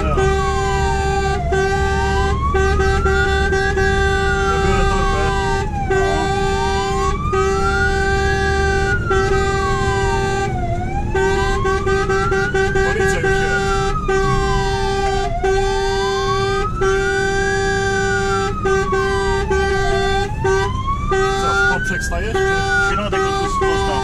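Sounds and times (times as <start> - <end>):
fire engine siren wailing: 0.0 - 24.0
truck engine and road rumble: 0.0 - 24.0.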